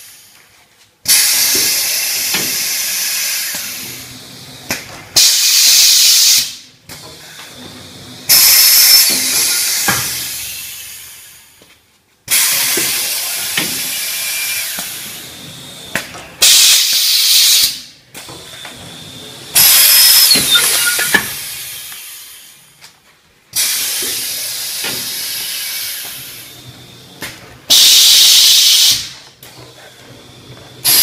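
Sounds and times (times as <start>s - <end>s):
machine air hiss bursts: 1.0s - 4.1s, 5.2s - 6.7s, 8.2s - 11.6s, 12.3s - 15.1s, 16.4s - 17.9s, 19.5s - 22.6s, 23.5s - 26.6s, 27.7s - 29.2s.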